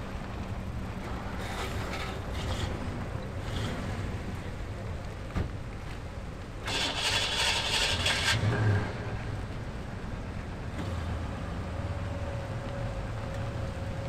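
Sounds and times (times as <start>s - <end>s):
car engines idling: 0.0s - 14.0s.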